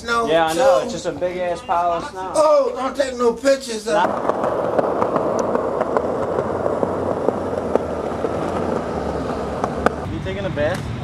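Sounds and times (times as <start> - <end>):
skateboard wheels rolling on paving: 2.8 - 11.0
skateboard wheel clicks: 4.0 - 10.1.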